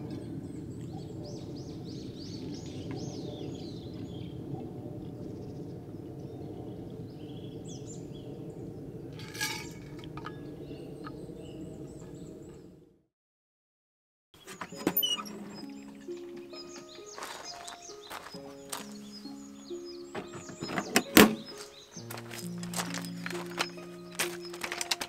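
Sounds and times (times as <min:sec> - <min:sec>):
birds calling: 0:14.4 - 0:25.0.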